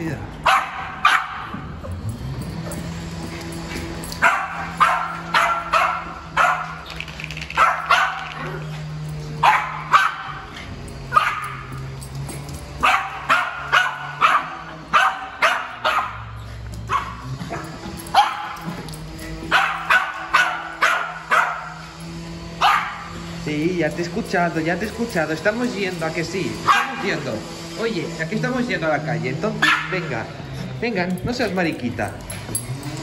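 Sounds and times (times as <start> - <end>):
small dog barking high yaps: 0.4 - 1.6, 4.2 - 6.9, 7.6 - 8.7, 9.4 - 10.5, 11.1 - 11.7, 12.8 - 16.3, 16.9 - 18.7, 19.5 - 21.8, 22.6 - 23.2, 29.6 - 30.0.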